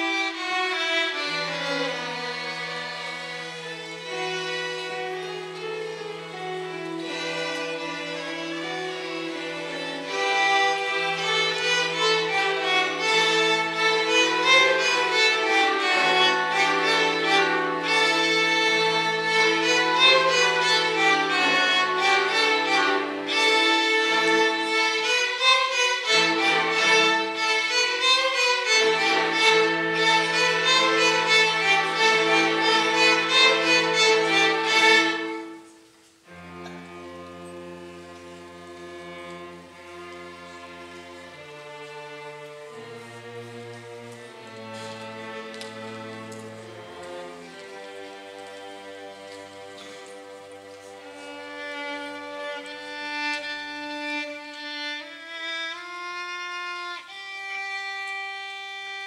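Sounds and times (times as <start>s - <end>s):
string orchestra playing: 0.0s - 59.0s.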